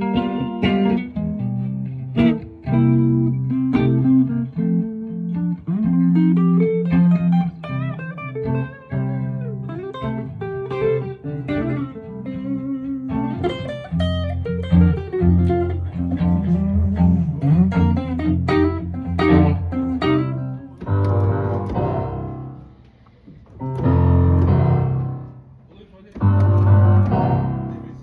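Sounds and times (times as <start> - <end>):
electric guitar melody: 0.0 - 28.0
keyboard piano chord: 17.8 - 22.7, 23.5 - 25.5, 26.2 - 28.0.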